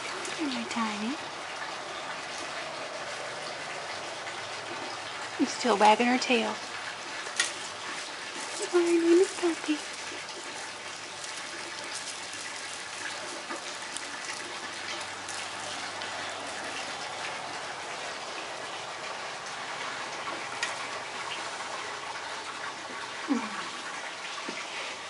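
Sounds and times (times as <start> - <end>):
foil toy clicks and crinkles: 7.3 - 17.0.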